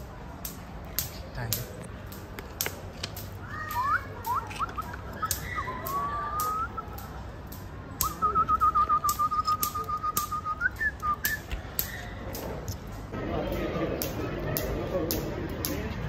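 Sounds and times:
sharp clicks: 0:00.4 - 0:13.0
person whistling: 0:08.0 - 0:11.4.

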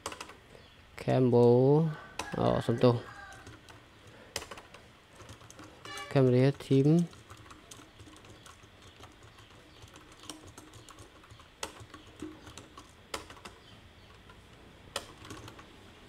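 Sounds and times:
computer keyboard typing: 0:00.0 - 0:00.4, 0:03.3 - 0:15.7.

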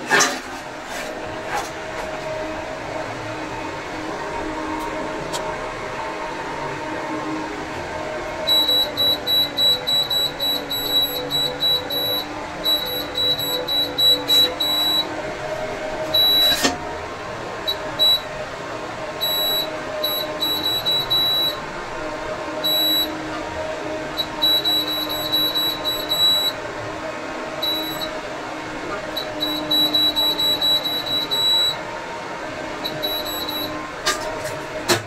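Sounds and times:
cooktop buzzer beeping: 0:08.4 - 0:15.2, 0:16.1 - 0:16.8, 0:17.6 - 0:18.3, 0:19.2 - 0:21.7, 0:22.6 - 0:23.3, 0:24.2 - 0:26.6, 0:27.5 - 0:28.2, 0:29.1 - 0:31.8, 0:32.8 - 0:33.8.

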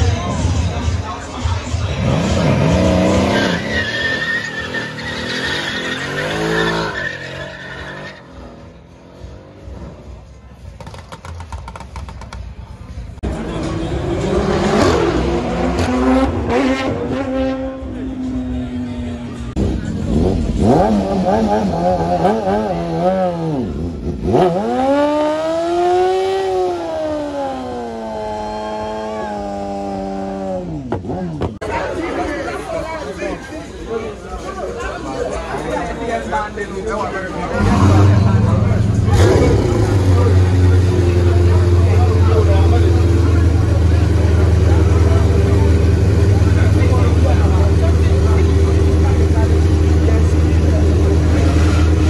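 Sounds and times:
car engine revving hard: 0:01.9 - 0:08.0, 0:19.8 - 0:30.9, 0:37.5 - 0:52.0
tyres squealing: 0:02.9 - 0:08.4.

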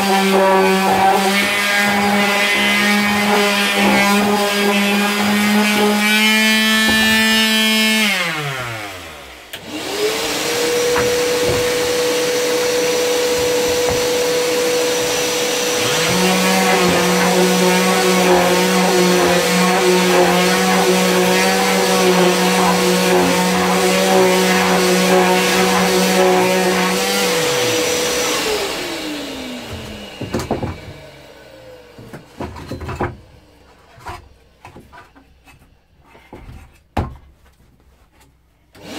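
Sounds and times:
sander motor whine: 0:00.0 - 0:32.0
vacuum motor hum: 0:00.0 - 0:32.5
knocks on wooden beam: 0:06.8 - 0:07.4, 0:10.9 - 0:14.2.

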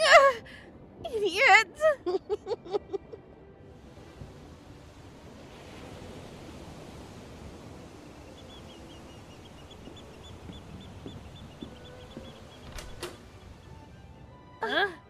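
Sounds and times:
steady rushing background: 0:00.0 - 0:14.6
bird chirping: 0:08.2 - 0:13.5
footsteps on wooden deck: 0:09.8 - 0:13.4.

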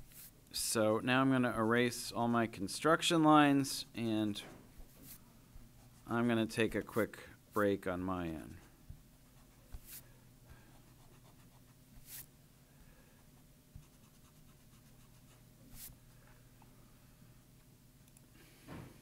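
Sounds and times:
eraser rubbing on paper: 0:00.0 - 0:00.3, 0:09.4 - 0:10.1, 0:10.9 - 0:12.3, 0:13.8 - 0:16.0
low room hum: 0:00.0 - 0:19.0.

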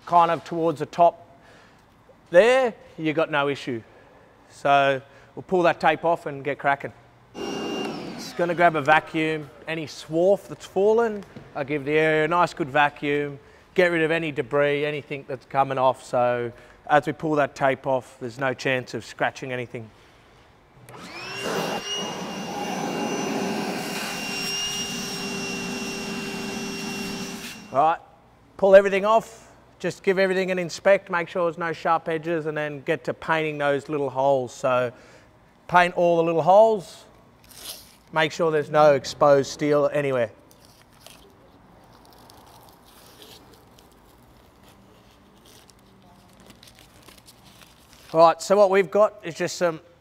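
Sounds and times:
shop vacuum motor whine: 0:07.4 - 0:09.2, 0:20.9 - 0:27.8
tape peeling crackle: 0:37.4 - 0:38.1, 0:40.5 - 0:48.2.

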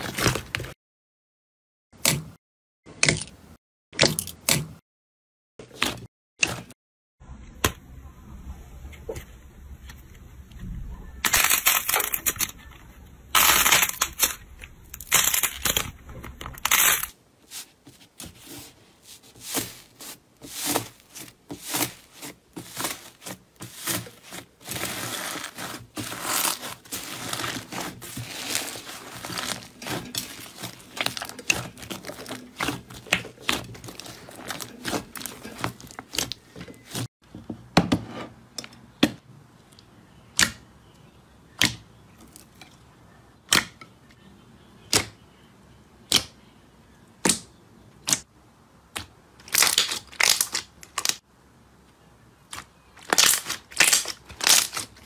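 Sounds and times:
foam beads crunching: 0:11.2 - 0:12.7, 0:13.3 - 0:17.7, 0:18.4 - 0:37.1, 0:53.0 - 0:55.0.

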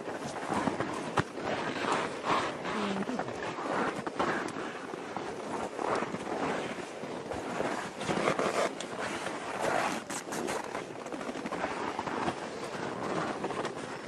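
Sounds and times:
fabric rustling and scraping: 0:00.0 - 0:14.0.

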